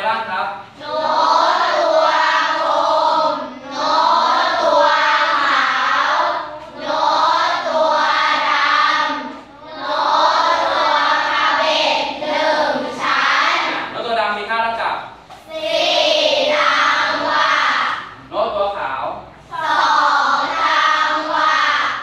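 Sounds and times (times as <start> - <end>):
children chanting in unison: 0.7 - 14.0, 15.4 - 18.2, 19.4 - 22.0.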